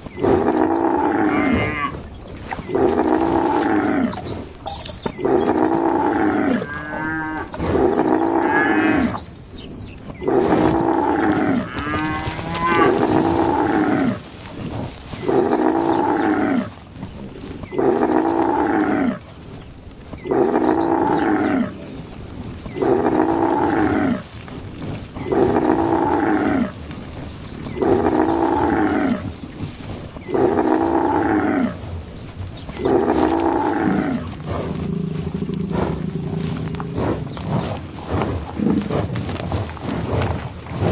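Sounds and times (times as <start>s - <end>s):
cows mooing: 0.0s - 16.8s, 20.3s - 21.8s
higher wavering moo: 0.2s - 14.6s.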